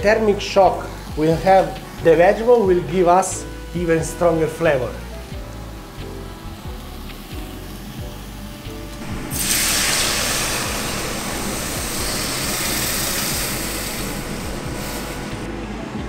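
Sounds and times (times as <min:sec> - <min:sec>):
water hissing in hot pot: 0:00.0 - 0:15.5.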